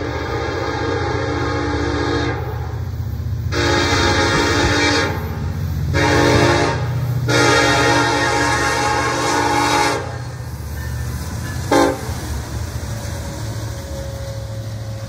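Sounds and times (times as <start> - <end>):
locomotive air horn blasts: 0.0 - 2.8, 3.5 - 10.2, 11.7 - 12.2
diesel locomotive rumble: 0.0 - 15.0.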